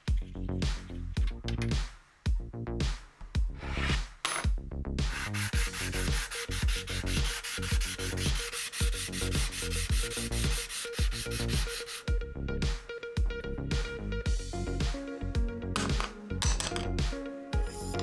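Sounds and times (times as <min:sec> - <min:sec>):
background music: 0:00.0 - 0:18.0
metal scraping on sandpaper: 0:05.1 - 0:12.1.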